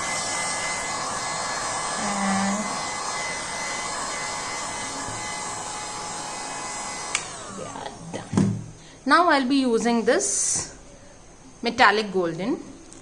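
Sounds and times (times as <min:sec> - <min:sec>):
heat gun blowing air: 0:00.0 - 0:07.7.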